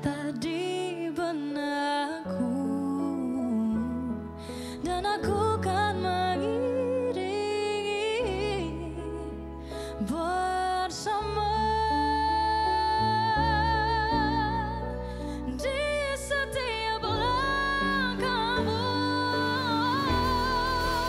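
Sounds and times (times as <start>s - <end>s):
soft instrumental accompaniment: 0.0s - 21.0s
woman singing pop ballad: 0.0s - 21.0s.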